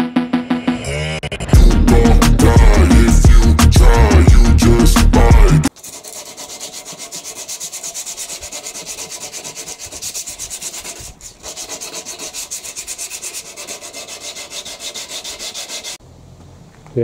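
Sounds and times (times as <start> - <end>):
sandpaper rubbing on steel tubing: 5.7 - 16.0.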